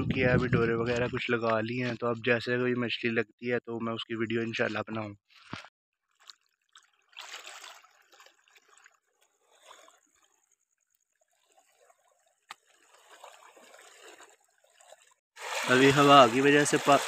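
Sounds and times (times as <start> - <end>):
waves lapping over pebbles: 6.1 - 17.0.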